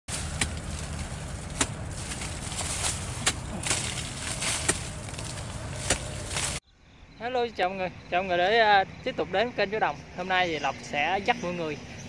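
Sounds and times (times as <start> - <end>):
machete chopping hard earth: 0.1 - 6.6.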